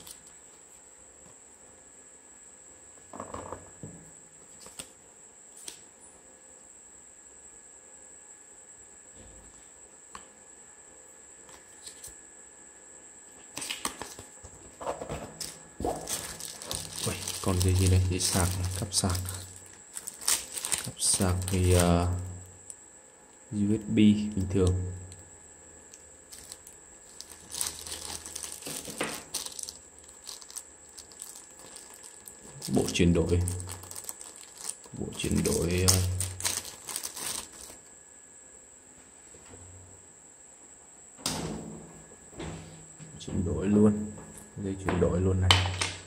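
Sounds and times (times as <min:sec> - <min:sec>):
paper cards shuffled by hand: 0:04.5 - 0:04.9, 0:13.4 - 0:22.0, 0:26.4 - 0:37.8
paper rustling: 0:13.6 - 0:21.9, 0:26.3 - 0:37.8
faint steady hiss: 0:15.1 - 0:46.0
plastic bag crinkling: 0:15.4 - 0:22.3, 0:26.3 - 0:37.9.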